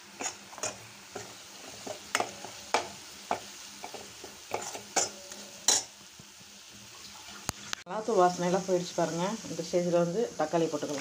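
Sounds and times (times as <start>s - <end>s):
spoon scraping metal pan: 0.0s - 5.9s
faint frying sizzle: 0.0s - 11.0s.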